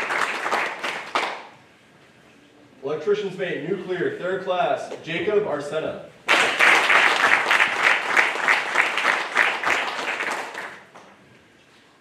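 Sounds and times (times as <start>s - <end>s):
audience applauding: 0.0s - 1.5s, 6.3s - 11.1s.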